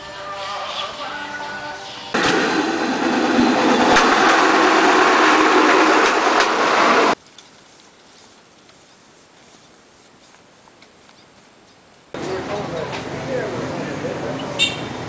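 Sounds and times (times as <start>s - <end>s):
rail vehicle clattering on track: 2.2s - 7.2s, 12.2s - 15.0s
small engine running: 2.2s - 7.2s.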